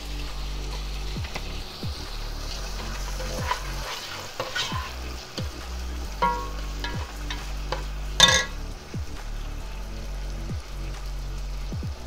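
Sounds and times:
onions sizzling in oil: 0.0 - 12.0
spoon knocking against pot: 6.2 - 7.4, 8.2 - 8.5.

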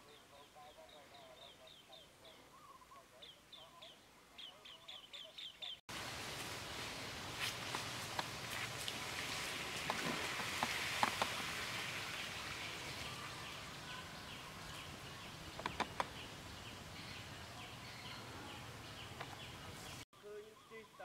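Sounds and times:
steady hiss: 5.9 - 13.8
sharp clicks: 15.5 - 16.2.

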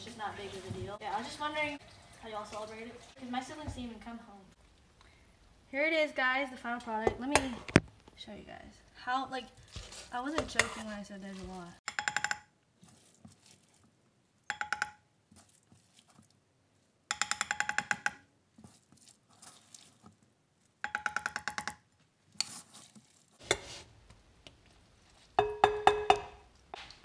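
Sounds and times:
metal spoon scraping steel pot: 9.8 - 11.0, 23.4 - 23.9.

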